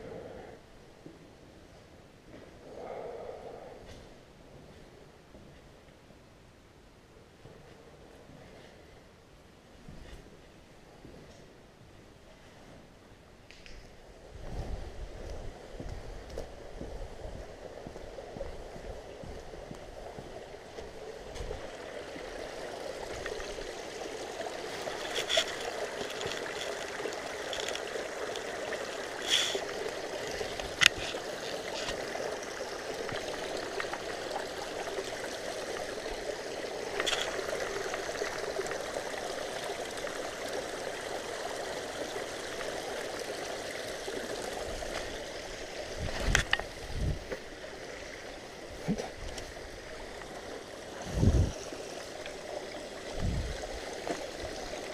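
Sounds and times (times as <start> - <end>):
running water: 14.4 - 54.9.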